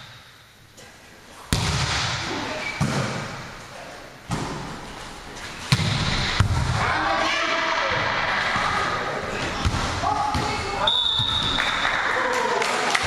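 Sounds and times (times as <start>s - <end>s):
volleyball being struck: 1.5s - 2.2s.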